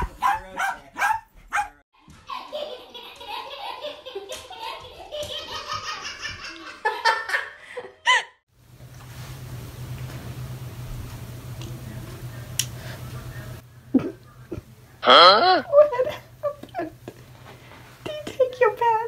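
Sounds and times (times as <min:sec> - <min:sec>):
dog barking: 0:00.0 - 0:01.8
laughter: 0:02.3 - 0:08.4, 0:13.9 - 0:14.6, 0:15.6 - 0:17.0.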